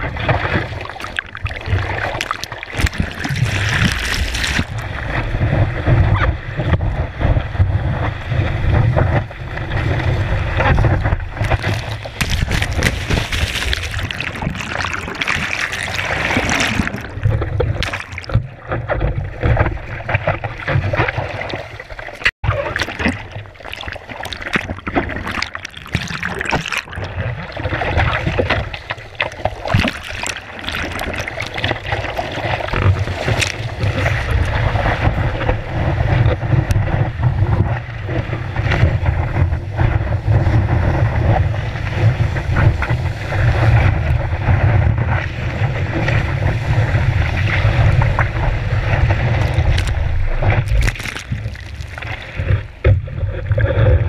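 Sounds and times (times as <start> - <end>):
water splashing over surfboard: 0.0 - 54.0.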